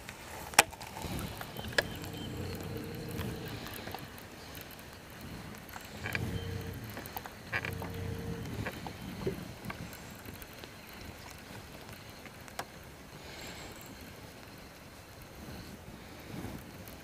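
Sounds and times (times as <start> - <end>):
small clicks and knocks: 0.6 - 4.0, 5.6 - 9.8
low hum: 1.1 - 4.1, 5.9 - 9.3.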